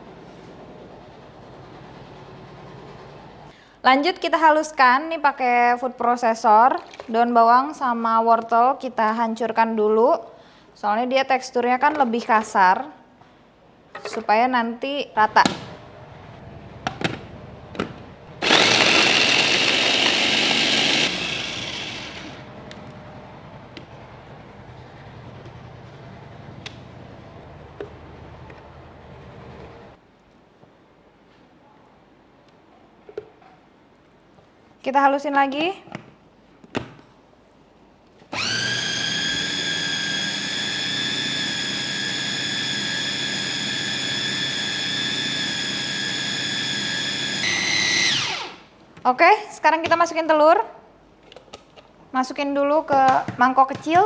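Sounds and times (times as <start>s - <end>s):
food processor motor running: 18.4s - 22.5s, 38.4s - 48.6s.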